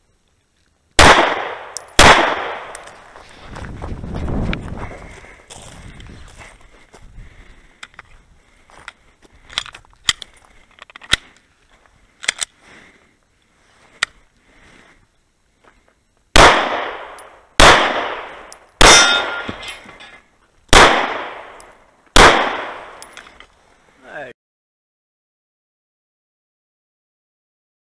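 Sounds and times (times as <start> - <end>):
pistol shots: 1.0 - 2.9, 16.3 - 19.6, 20.7 - 23.1.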